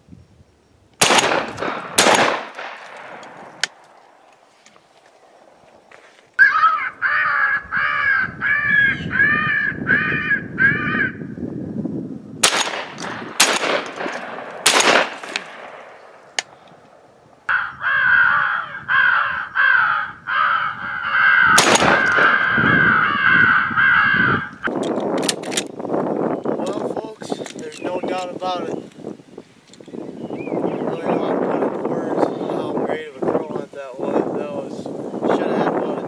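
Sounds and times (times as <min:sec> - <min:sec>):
shotgun shots: 0:01.0 - 0:03.8, 0:12.4 - 0:16.5, 0:21.6 - 0:22.4
crows cawing: 0:06.4 - 0:11.3, 0:17.5 - 0:24.7.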